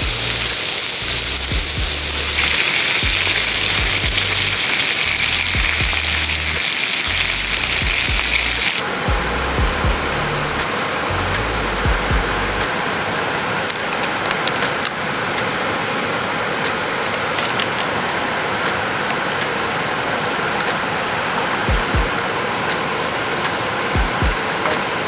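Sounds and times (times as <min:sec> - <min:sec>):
steady rushing noise: 0:00.0 - 0:25.0.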